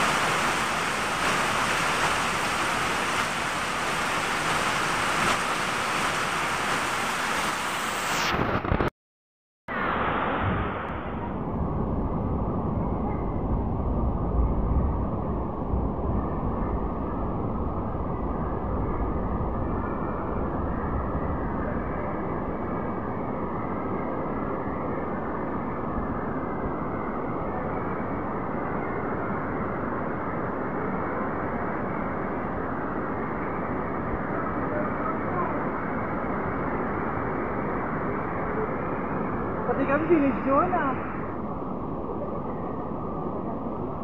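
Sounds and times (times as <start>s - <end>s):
heavy rain on pavement and roof: 0.0s - 8.2s
runoff streaming off roof: 0.0s - 8.4s.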